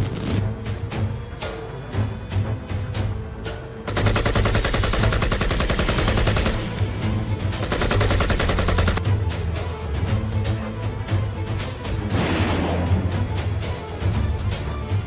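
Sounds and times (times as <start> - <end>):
background music with deep bass: 0.0 - 15.0
rapid automatic gunfire: 3.9 - 6.8, 7.5 - 9.0.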